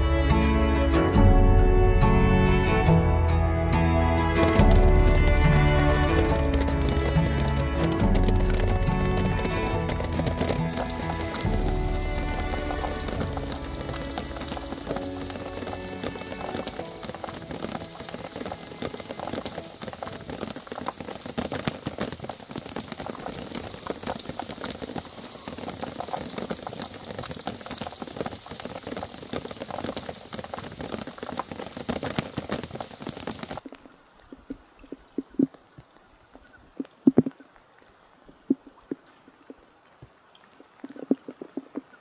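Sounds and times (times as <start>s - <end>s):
steady rain falling: 0.0s - 42.0s
sharp drips: 10.0s - 42.0s.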